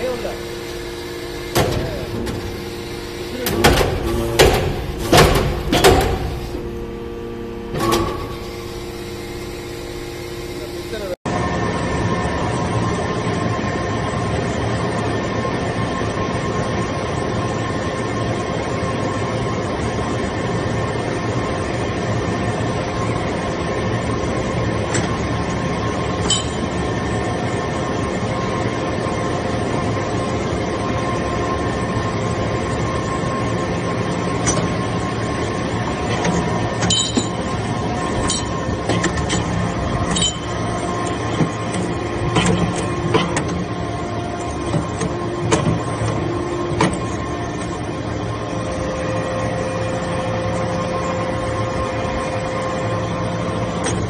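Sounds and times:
hydraulic pump humming: 0.0 - 11.2, 24.2 - 54.0.

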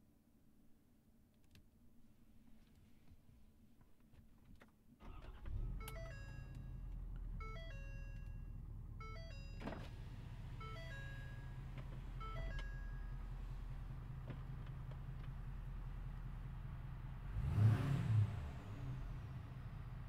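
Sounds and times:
diesel engine starting and idling: 5.0 - 20.0
truck warning chime: 5.7 - 13.8.

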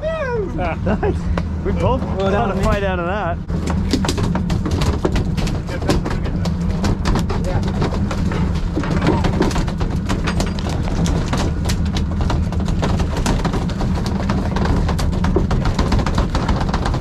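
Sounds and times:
boat engine running: 0.0 - 17.0
sharp knocks and clicks: 3.5 - 17.0.

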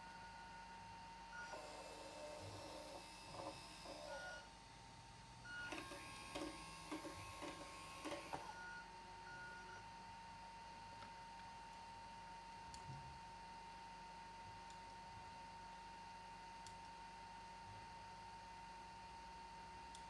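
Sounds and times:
small motor and gearbox whirring: 1.4 - 4.4, 5.6 - 8.6.

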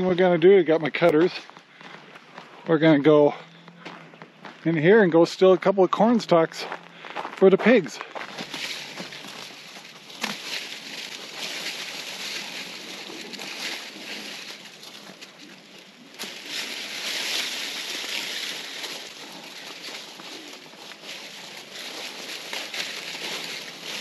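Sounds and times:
dry corn stalks rustling: 0.0 - 24.0
stalk snapping: 8.4 - 24.0.

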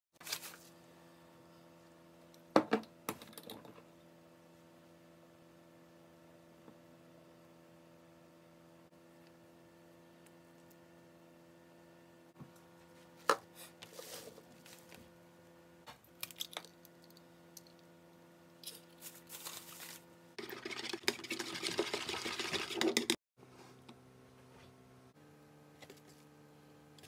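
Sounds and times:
egg beaten in plastic bowl: 20.4 - 23.2.

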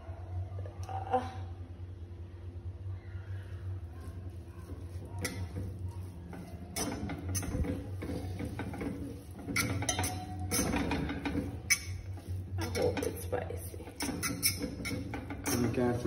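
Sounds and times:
steady low hum: 0.0 - 16.0
fork scraping metal pot: 4.7 - 16.0.

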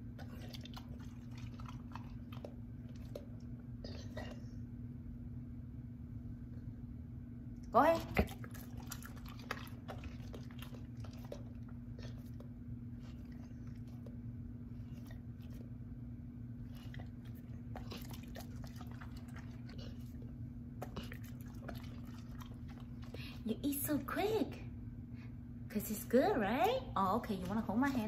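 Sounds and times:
dog chewing and smacking jaws: 0.0 - 4.4, 7.8 - 15.9, 16.5 - 23.4.

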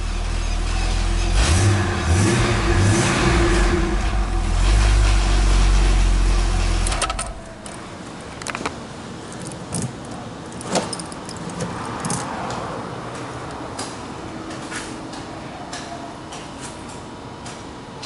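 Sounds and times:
keys jingling: 9.3 - 12.4.

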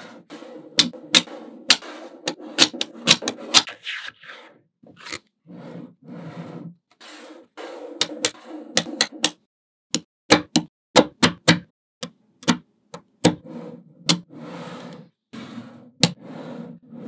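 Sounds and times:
balls rolling and rubbing: 0.0 - 9.5, 13.0 - 17.0.

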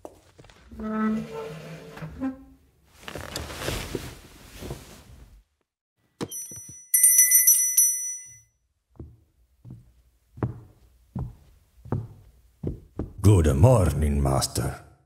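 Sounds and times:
service bell ringing: 6.3 - 8.5
footsteps approaching: 8.9 - 13.3.

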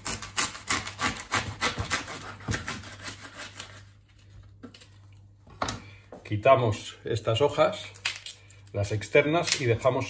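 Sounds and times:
bread knife sawing on cutting board: 0.0 - 3.8.

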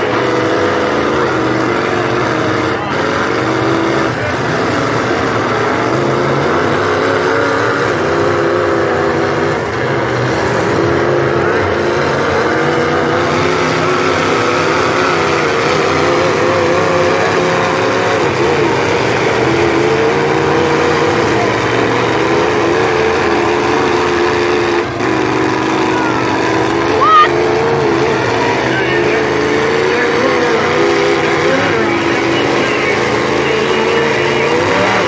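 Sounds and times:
car engines revving loudly: 0.0 - 35.0.

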